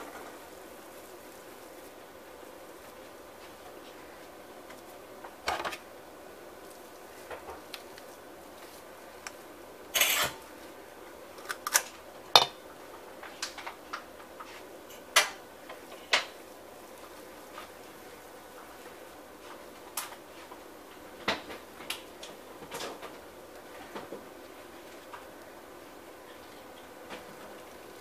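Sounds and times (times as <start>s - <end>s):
metal scoop scraping a steel bowl: 10.0s - 10.4s.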